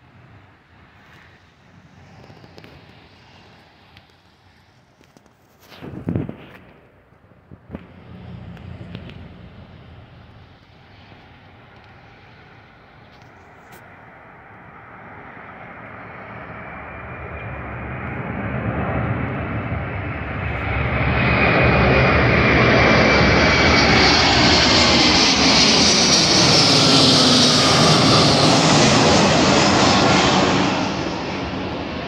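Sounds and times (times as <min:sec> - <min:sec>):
high jet engine whine: 0:00.0 - 0:32.0
jet airliner passing overhead: 0:00.0 - 0:32.0.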